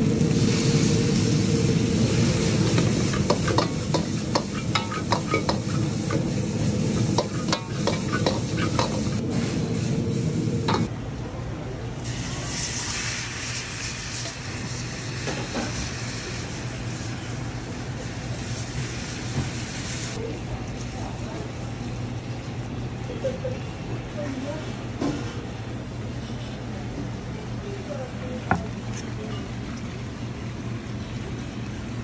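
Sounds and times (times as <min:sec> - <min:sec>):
sizzling hiss: 0:00.0 - 0:10.9
frying and burner rush: 0:00.0 - 0:32.0
metal ladle clanking on wok: 0:03.0 - 0:06.3, 0:06.9 - 0:09.1.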